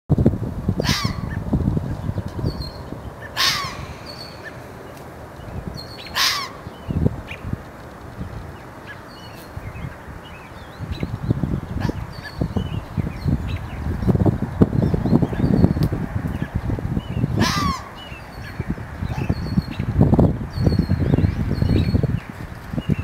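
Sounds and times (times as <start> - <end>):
low rumbling noise: 0.1 - 23.0
fox barking: 0.8 - 1.4, 3.2 - 4.7, 6.0 - 6.7, 11.8 - 12.2, 17.4 - 18.0.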